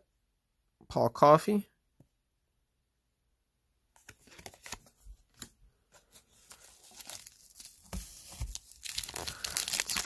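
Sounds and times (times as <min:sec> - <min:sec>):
paper wrapper tearing and crinkling: 0:06.4 - 0:10.0.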